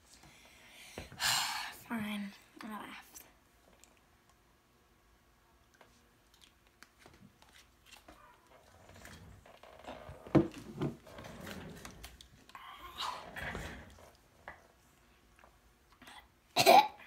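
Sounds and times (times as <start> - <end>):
objects knocking and rustling: 8.8 - 12.2.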